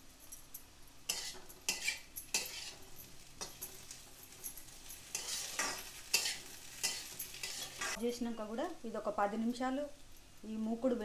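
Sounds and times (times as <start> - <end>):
light frying sizzle: 0.0 - 11.0
metal spatula scraping pan: 1.1 - 4.0, 5.0 - 8.0.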